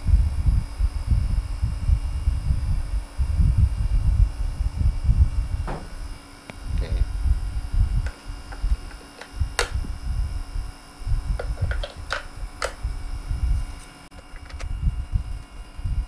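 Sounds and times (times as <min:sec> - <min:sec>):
low rumbling handling noise: 0:02.5 - 0:10.4, 0:11.0 - 0:16.0
batteries clicking into compartment: 0:08.1 - 0:09.8, 0:11.4 - 0:12.8, 0:14.2 - 0:14.7.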